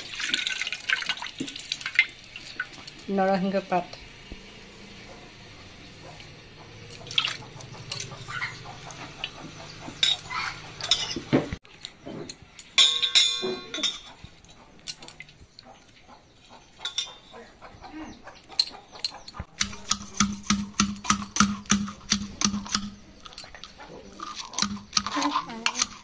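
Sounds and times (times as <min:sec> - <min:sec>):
steel bowls clinking: 0:09.9 - 0:11.3, 0:12.6 - 0:14.2, 0:19.0 - 0:26.0.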